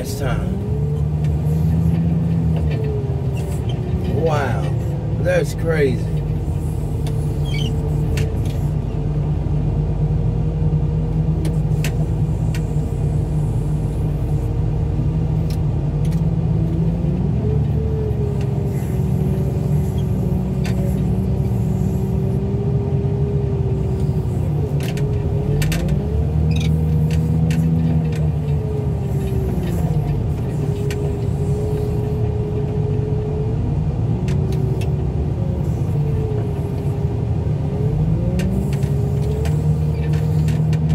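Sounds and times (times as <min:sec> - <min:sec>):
hydraulic whine: 0:00.0 - 0:09.0, 0:16.8 - 0:33.2, 0:34.4 - 0:40.9
heavy equipment engine running: 0:00.0 - 0:40.9.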